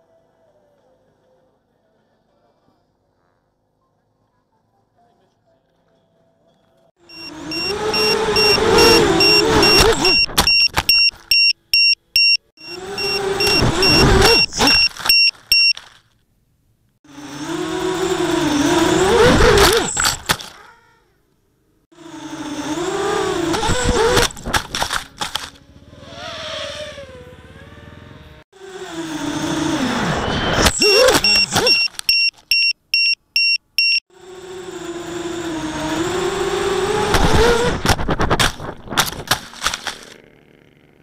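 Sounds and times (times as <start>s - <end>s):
drone motors whining: 7.0s - 15.7s, 17.1s - 20.7s, 21.9s - 32.4s, 33.9s - 41.0s
rapid high-pitched beeping: 7.1s - 15.7s.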